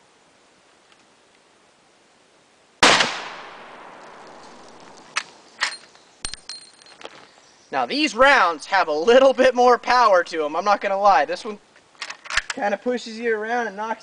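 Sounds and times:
rifle shot with echo: 2.8s - 4.6s
rifle lever metallic clacks: 12.0s - 12.6s.

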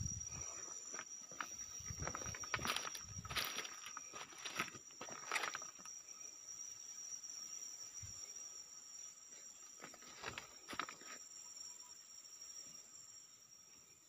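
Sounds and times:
insects trilling: 0.0s - 14.0s
footsteps crunching on leaf litter: 2.0s - 5.7s.

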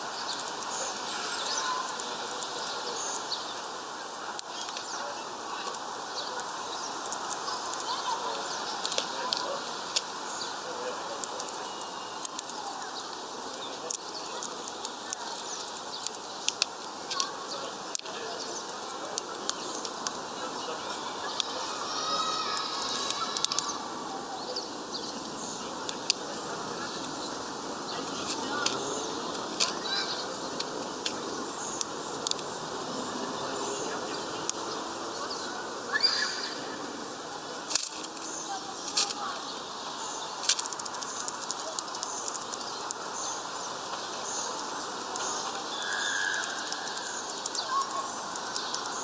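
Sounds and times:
bird pecking seeds on wood: 7.1s - 10.5s, 11.2s - 23.8s, 25.0s - 35.5s, 40.1s - 49.0s.

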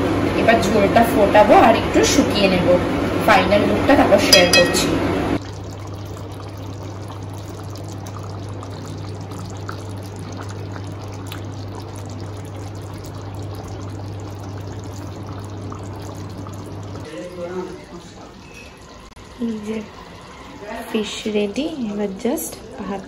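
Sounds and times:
curry bubbling and popping: 5.4s - 23.0s.

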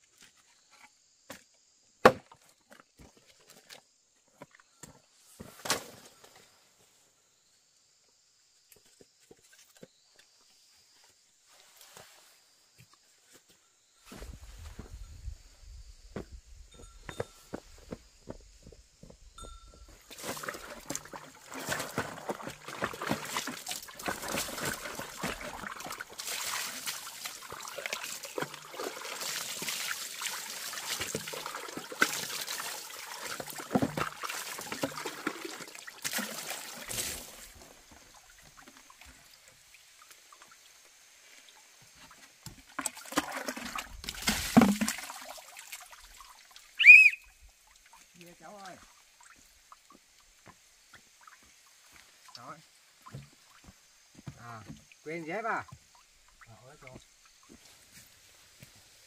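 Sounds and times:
water splashing and trickling: 19.9s - 59.0s
short high chirp: 46.8s - 47.4s.

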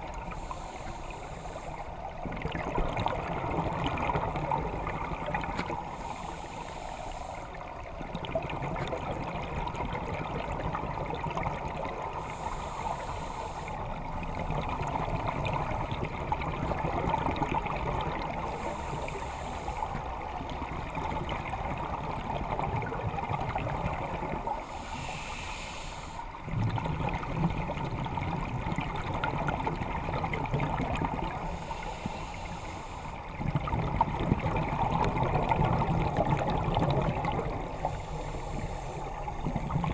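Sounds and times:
bubbling exhaled air: 0.0s - 39.9s
regulator hiss on inhale: 0.1s - 2.1s, 5.8s - 7.8s, 12.0s - 14.0s, 18.4s - 20.2s, 24.5s - 26.5s, 31.3s - 33.3s, 37.7s - 39.4s.

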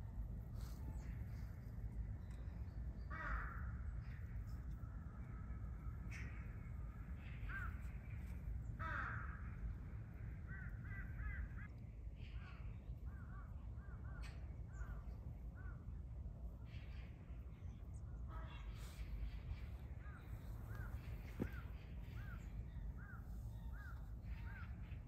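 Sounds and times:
harsh bird caw: 3.0s - 4.3s, 7.2s - 15.0s, 18.3s - 25.0s.

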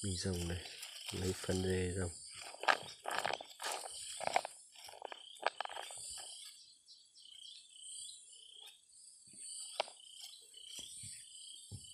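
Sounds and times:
insects buzzing: 0.0s - 11.9s.

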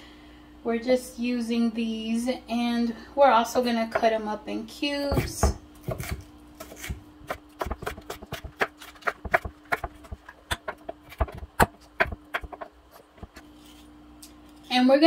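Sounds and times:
faint steady hum: 0.0s - 15.0s
knife tapping on cutting board: 7.6s - 12.7s.

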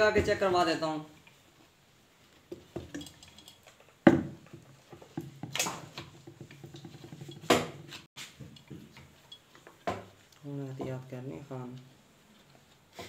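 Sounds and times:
knocks and clinks at workbench: 2.5s - 10.2s.

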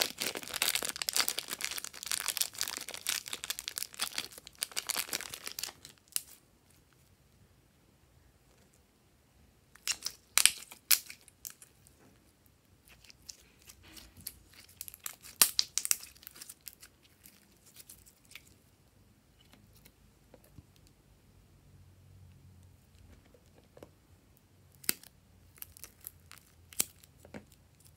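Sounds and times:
slime crackling and popping: 0.0s - 6.4s, 9.8s - 11.7s, 12.9s - 18.5s, 24.7s - 27.8s.

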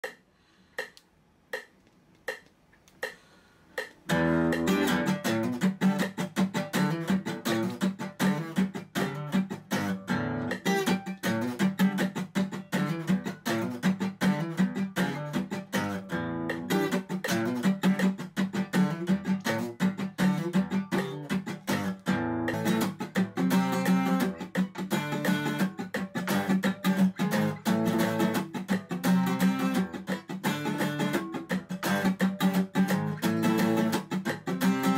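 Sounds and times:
count-in clicks: 0.0s - 6.2s
acoustic guitar strummed funk pattern: 3.8s - 34.9s.

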